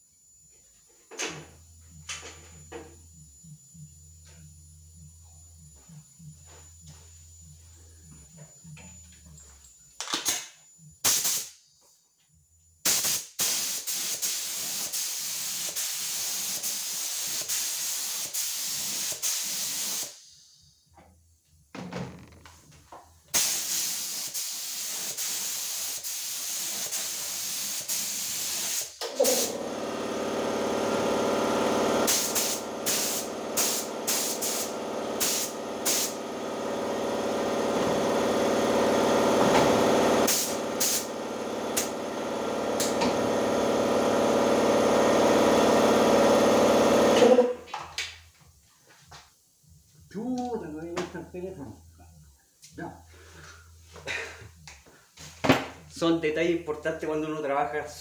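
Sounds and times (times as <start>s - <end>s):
motor humming: 1.1s - 10.0s
spray hissing: 11.0s - 11.5s, 12.9s - 20.3s, 23.3s - 29.6s, 32.0s - 36.2s, 40.2s - 41.1s.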